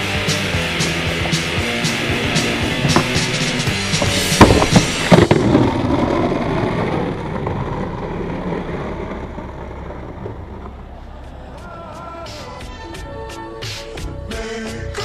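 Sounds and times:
skateboard slapping ground: 0.0 - 12.0
skateboard wheels rolling on asphalt: 0.0 - 12.4.

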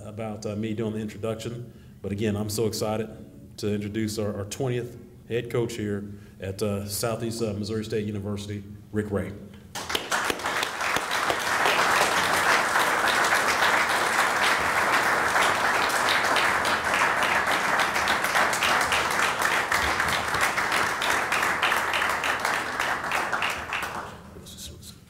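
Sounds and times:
audience applauding: 9.8 - 24.3.

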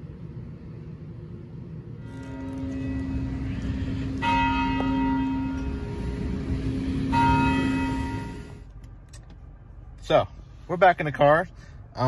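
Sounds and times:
clock tower bell striking: 2.1 - 8.6.

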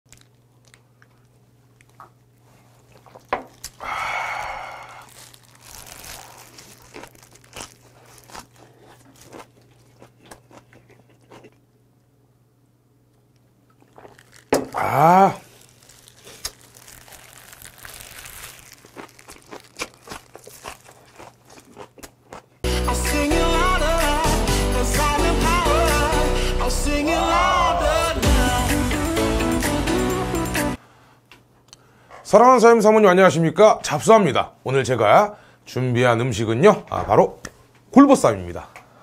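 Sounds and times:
man chewing and crunching: 0.1 - 11.8, 13.4 - 22.9
breathy exhale: 3.8 - 5.2
man humming mmm: 14.7 - 15.5.

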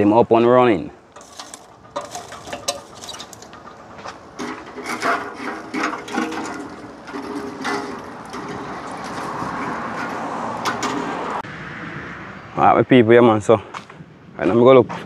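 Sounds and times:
wood and utensils knocking: 1.2 - 11.4.

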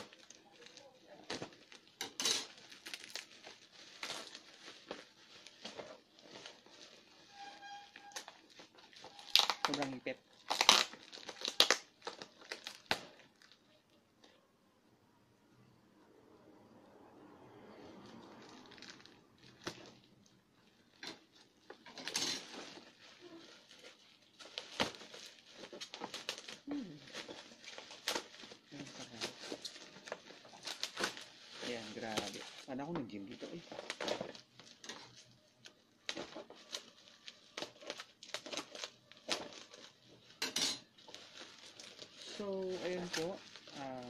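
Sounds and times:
bubble wrap crinkling: 0.0 - 14.4, 17.6 - 44.0.

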